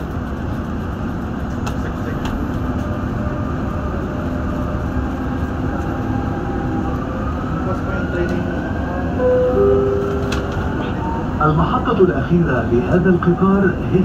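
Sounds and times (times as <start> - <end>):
train car rumbling on track: 0.0 - 14.0
low even hum: 9.2 - 11.0.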